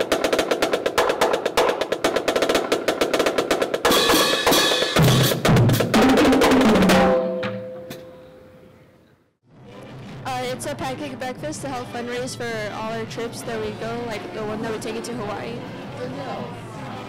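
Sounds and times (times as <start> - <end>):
marching drumline cadence: 0.0 - 8.1.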